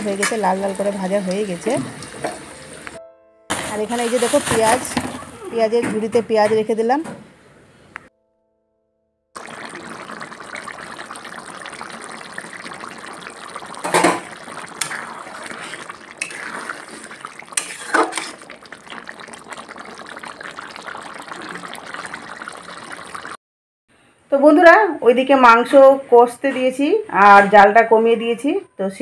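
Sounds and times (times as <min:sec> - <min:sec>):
meat sizzling in oil: 0:09.4 - 0:23.4.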